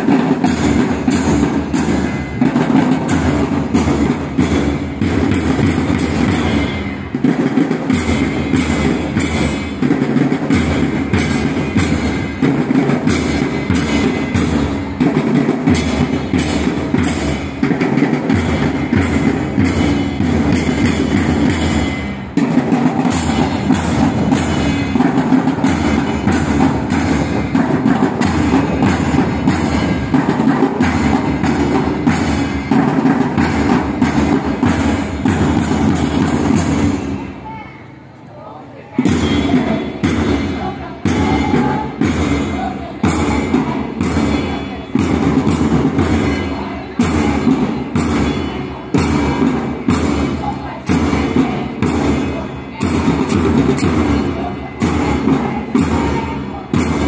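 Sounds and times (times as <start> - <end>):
snare drums marching rhythm: 0.0 - 37.7, 38.9 - 57.0.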